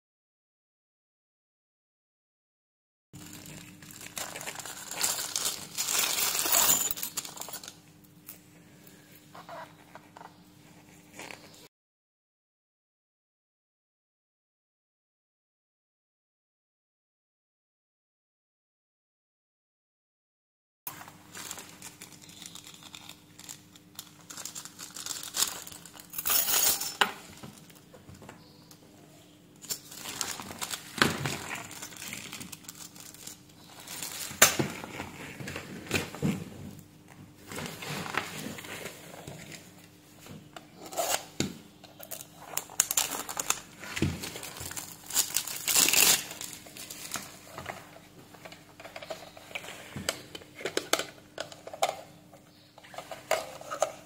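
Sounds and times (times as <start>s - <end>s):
plastic wrapping crinkling: 3.2s - 7.8s, 20.9s - 26.2s, 29.6s - 36.4s, 41.9s - 50.9s.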